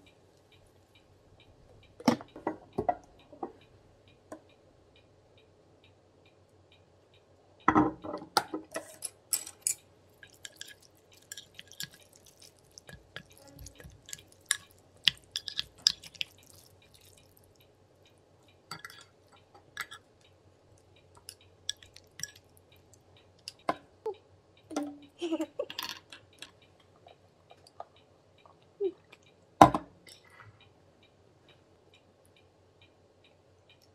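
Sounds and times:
utensils clicking on ceramic dish: 0:08.8 - 0:17.4, 0:18.7 - 0:20.0, 0:21.2 - 0:22.5
wet noodle squishes: 0:10.1 - 0:17.7, 0:21.2 - 0:23.7.

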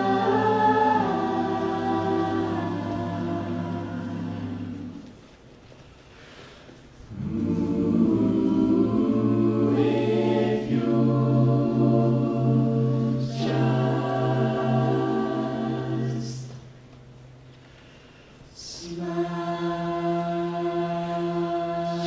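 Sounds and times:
choir singing held chords: 0:00.0 - 0:05.3, 0:07.1 - 0:16.9, 0:18.5 - 0:22.0.

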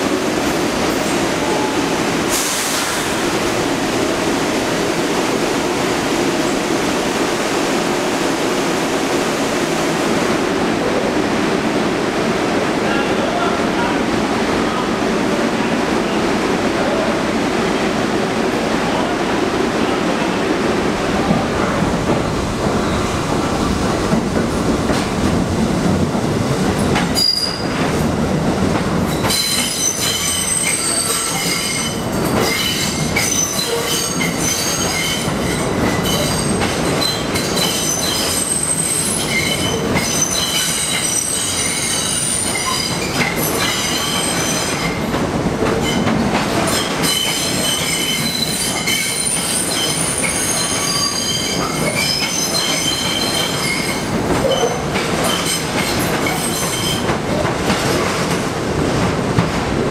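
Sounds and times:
low train rumble: 0:00.0 - 0:59.9
subway train wheels squealing: 0:00.9 - 0:03.2, 0:22.6 - 0:24.0, 0:26.9 - 0:28.0, 0:29.1 - 0:45.1, 0:45.8 - 0:57.1.

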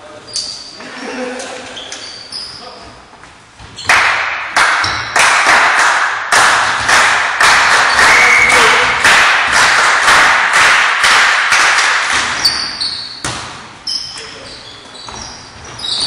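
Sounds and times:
rhythmic clapping in unison: 0:03.9 - 0:12.5.

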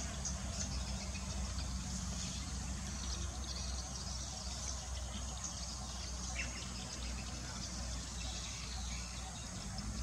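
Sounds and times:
birds chirping: 0:00.0 - 0:10.0
insects chirping: 0:00.0 - 0:10.0
vehicle engine idling: 0:00.0 - 0:10.0.

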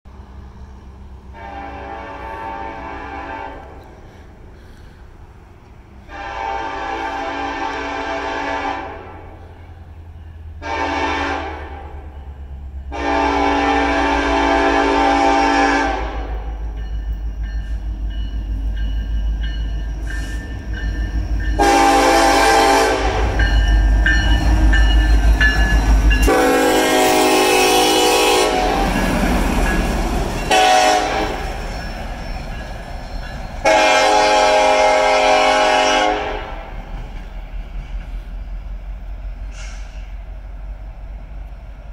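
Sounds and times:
diesel locomotive engine: 0:00.0 - 0:41.9
train wheels rolling on rails: 0:00.1 - 0:41.9
train air horn blasts: 0:01.3 - 0:03.9, 0:06.0 - 0:09.6, 0:10.6 - 0:12.1, 0:12.8 - 0:16.6, 0:21.6 - 0:23.6, 0:26.1 - 0:29.1, 0:30.5 - 0:31.6, 0:33.6 - 0:36.7.

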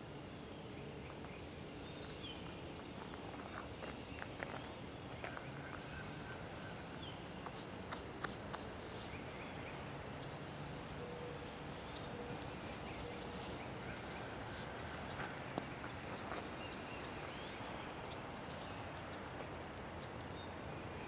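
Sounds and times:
campfire crackling and popping: 0:00.0 - 0:10.4.

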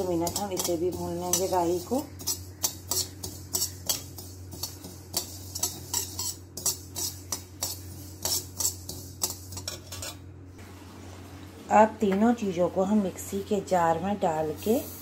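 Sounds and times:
spoon scraping metal pan: 0:00.0 - 0:10.3
low steady hum: 0:00.0 - 0:15.0.

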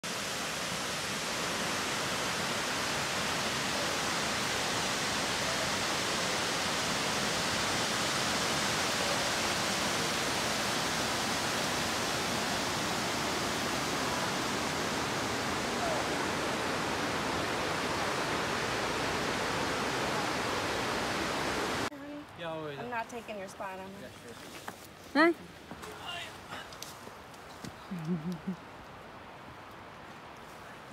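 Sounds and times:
water pouring over dam spillway: 0:00.1 - 0:21.0.

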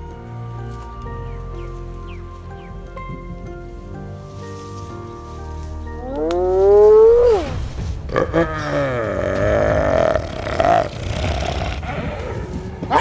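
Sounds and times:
background music: 0:00.0 - 0:13.0
monster roaring: 0:06.2 - 0:13.0.

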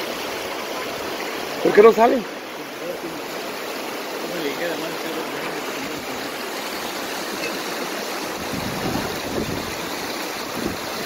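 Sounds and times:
river water rushing: 0:00.0 - 0:11.0
wind buffeting microphone: 0:08.2 - 0:11.0.

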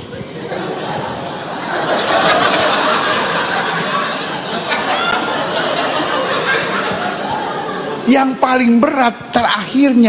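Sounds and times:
audience laughing: 0:00.4 - 0:08.1.

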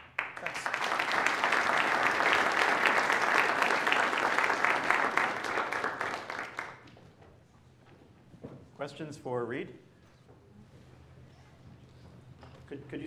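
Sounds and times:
audience applauding: 0:00.0 - 0:06.9.

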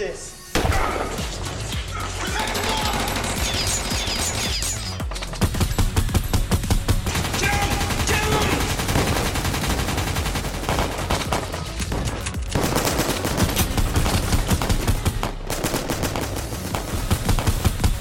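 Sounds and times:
automatic rifle fire: 0:05.6 - 0:18.0.

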